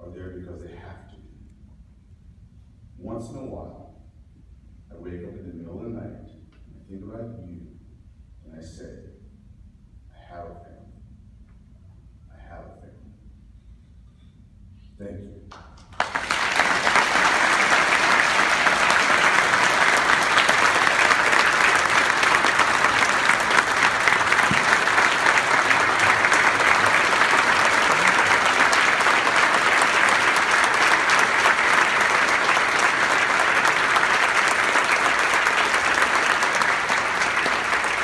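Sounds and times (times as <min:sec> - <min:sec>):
audience applause: 0:15.9 - 0:38.0.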